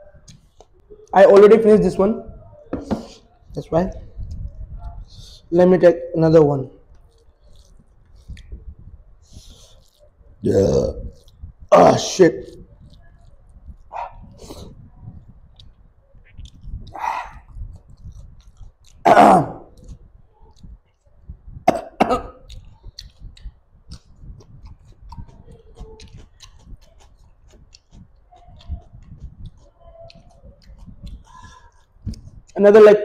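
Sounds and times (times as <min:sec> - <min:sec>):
faint eating clicks: 0:15.1 - 0:19.0, 0:21.8 - 0:32.6
man coughing: 0:21.7 - 0:22.4.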